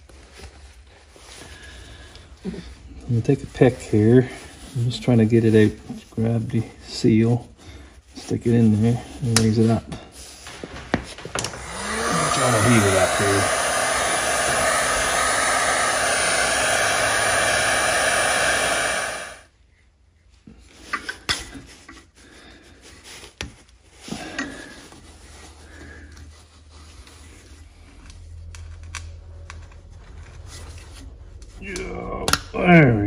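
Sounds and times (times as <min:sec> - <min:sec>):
heat gun blowing: 0:11.4 - 0:19.5.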